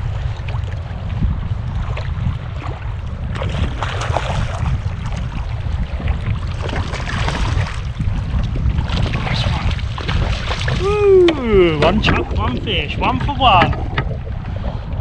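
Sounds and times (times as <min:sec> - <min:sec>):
water splashing against kayak: 0:00.0 - 0:15.0
wind rumbling on microphone: 0:00.0 - 0:15.0.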